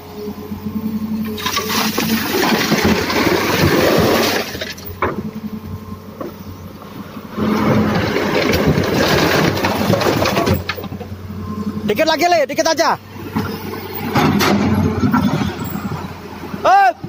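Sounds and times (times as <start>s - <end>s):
engine hum: 0.0s - 17.0s
rock and water pouring into truck bed: 1.4s - 4.9s.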